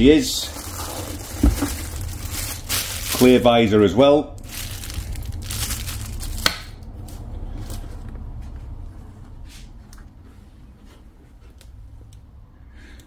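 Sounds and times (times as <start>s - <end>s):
plastic bag rustling: 0.0s - 3.7s, 4.4s - 6.5s.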